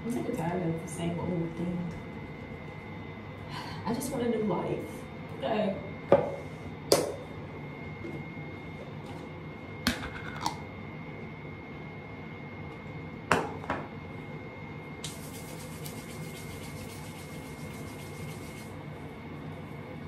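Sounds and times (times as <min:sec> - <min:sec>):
hands rubbing together: 0:15.1 - 0:18.7.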